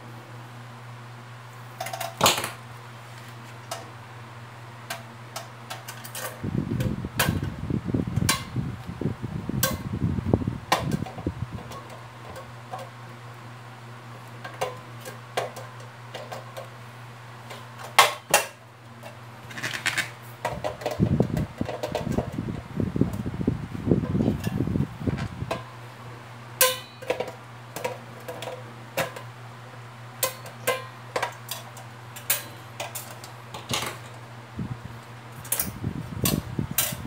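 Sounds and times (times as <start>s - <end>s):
steady low hum: 0.0s - 37.0s.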